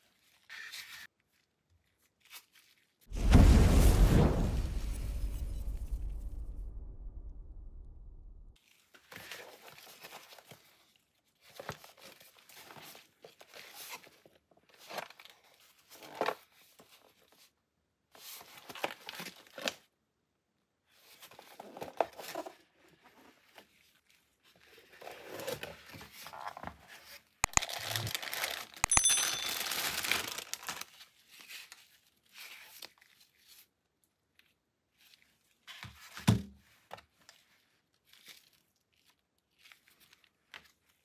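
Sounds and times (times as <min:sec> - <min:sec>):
plastic bag crinkling: 0:27.4 - 0:31.3.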